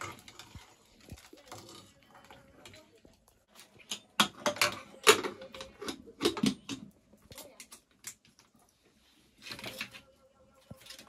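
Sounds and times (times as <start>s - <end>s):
metal pots and utensils clattering: 0.0s - 8.1s.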